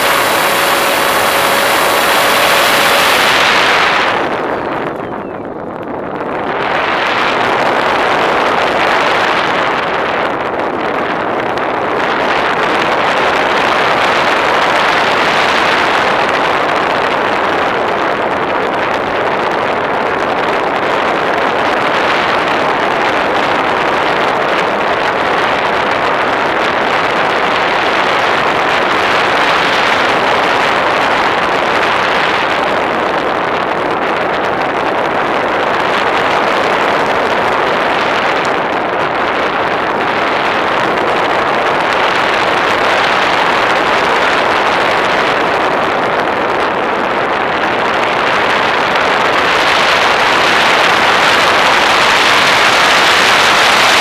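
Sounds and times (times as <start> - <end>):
aircraft rushing noise: 0.0 - 10.1.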